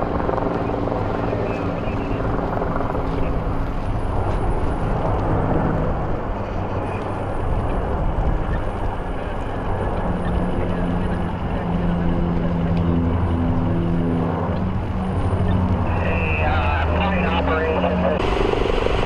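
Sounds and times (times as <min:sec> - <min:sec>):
engine drone: 0:00.0 - 0:19.0
loud rushing noise: 0:15.8 - 0:19.0.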